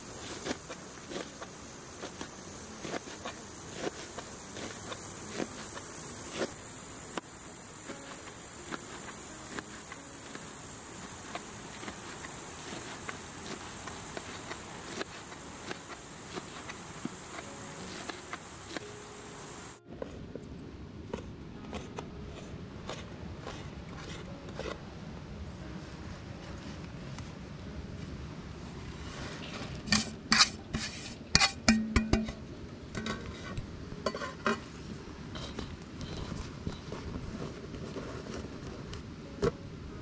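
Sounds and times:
insects buzzing and chirring: 0.0s - 19.8s.

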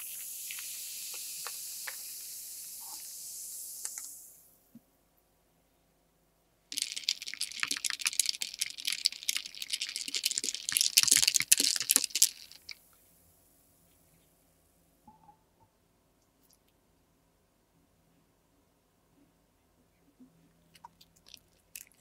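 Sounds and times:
faint fizz: 0.0s - 4.7s, 6.7s - 13.0s
ice cubes clinking against glass: 6.7s - 12.8s.

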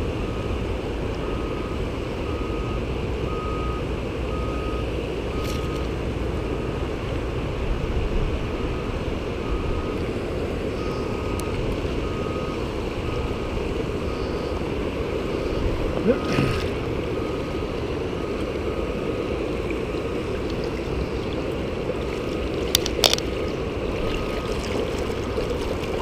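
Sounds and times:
river water rushing over rapids: 5.9s - 26.0s.

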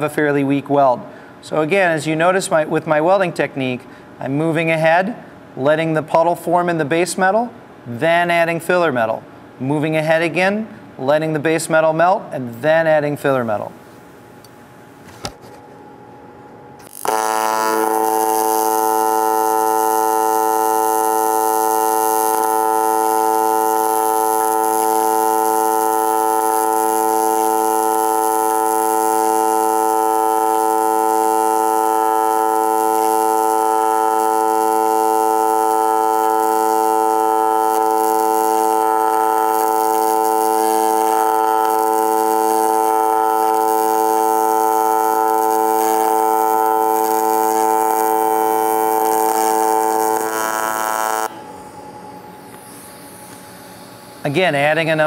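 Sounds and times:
welding arc buzzing: 15.0s - 55.0s.

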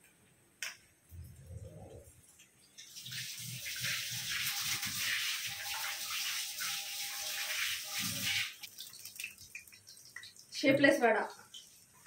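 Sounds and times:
water running from tap: 2.8s - 12.0s.

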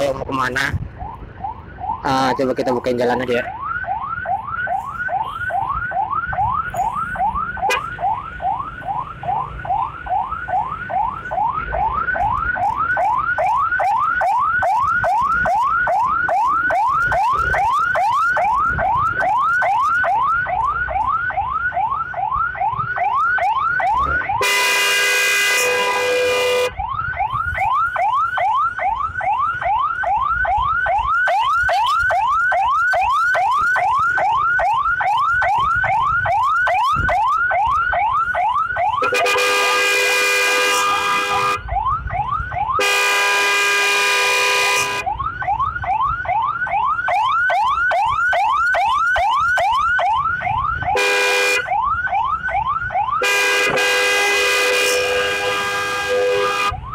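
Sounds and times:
ambulance siren yelping: 0.0s - 56.9s
horn blasts: 24.4s - 26.7s, 39.0s - 41.6s, 42.8s - 45.0s, 51.0s - 51.6s, 53.2s - 56.8s.

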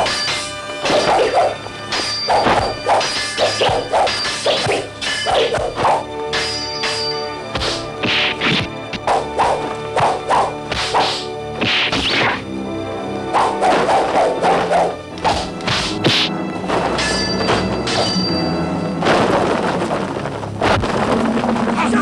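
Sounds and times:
swords striking: 0.0s - 12.4s, 13.2s - 18.4s
background music: 0.0s - 22.0s
fight whacks and thuds: 2.3s - 12.4s, 13.4s - 18.2s.

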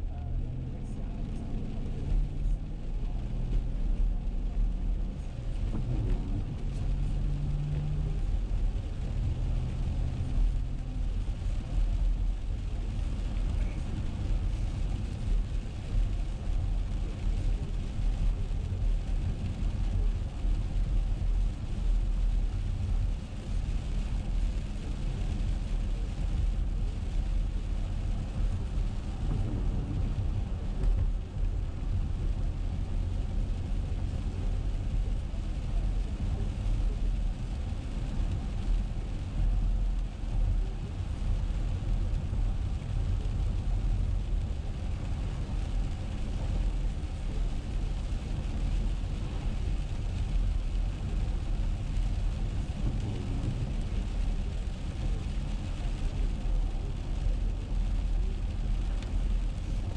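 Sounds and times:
tyre and engine rumble: 0.0s - 59.9s
tyres hissing on wet road: 0.0s - 59.9s.

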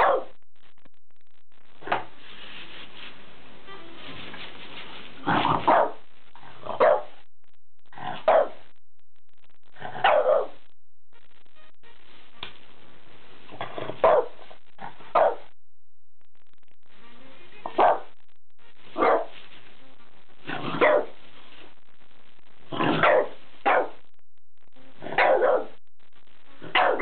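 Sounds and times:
dog barking: 0.0s - 0.3s, 5.4s - 6.0s, 6.7s - 7.2s, 8.1s - 8.6s, 9.9s - 10.6s, 13.8s - 15.5s, 17.6s - 18.1s, 19.0s - 19.3s, 20.7s - 21.2s, 22.8s - 24.0s, 25.0s - 25.8s, 26.7s - 27.0s.

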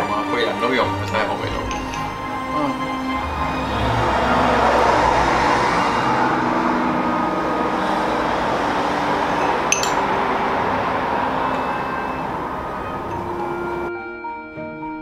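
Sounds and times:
spoon clinking ceramic ramekin: 1.1s - 2.4s, 9.6s - 10.0s
steady rushing noise: 1.6s - 13.9s.

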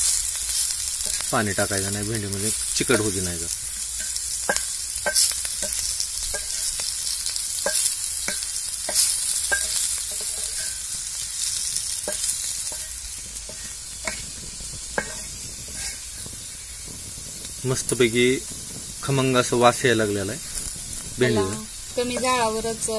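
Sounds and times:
okra sizzling in oil: 0.0s - 22.9s
wooden spatula scraping and tapping pan: 2.2s - 6.9s, 7.6s - 17.4s, 20.3s - 22.9s.

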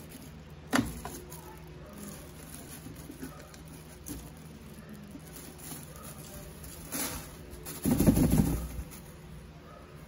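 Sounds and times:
handling noise: 0.0s - 9.4s
plastic bin liner rustling: 2.0s - 9.2s.

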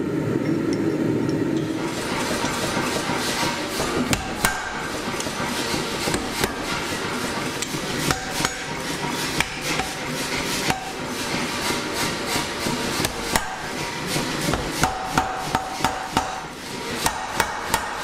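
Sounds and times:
hammer striking metal bar: 3.0s - 18.0s.

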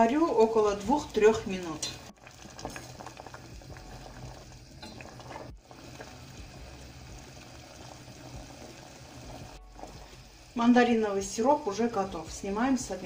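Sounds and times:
syrup bubbling in saucepan: 0.0s - 13.0s.

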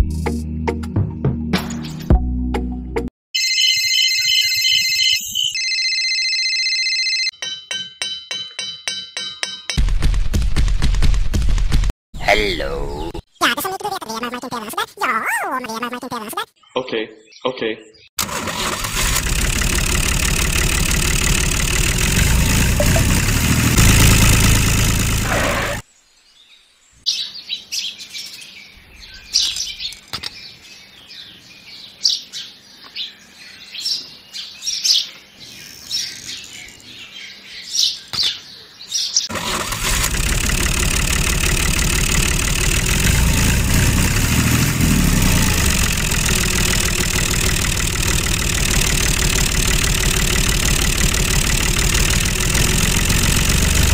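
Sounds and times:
birds chirping: 12.2s - 18.2s, 25.2s - 39.3s
motor running loudly: 18.8s - 25.8s, 39.4s - 53.9s.

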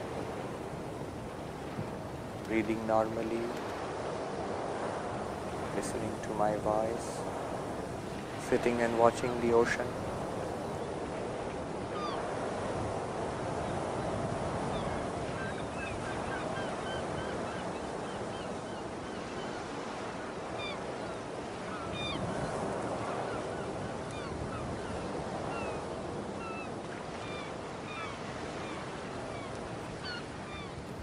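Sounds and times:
ocean surf washing: 0.0s - 31.0s
birds chirping: 23.2s - 31.0s.

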